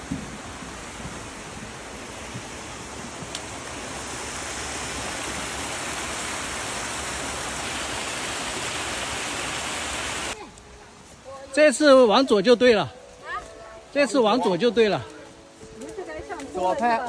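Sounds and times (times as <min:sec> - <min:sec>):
creek splashing over rocks: 0:00.0 - 0:10.4.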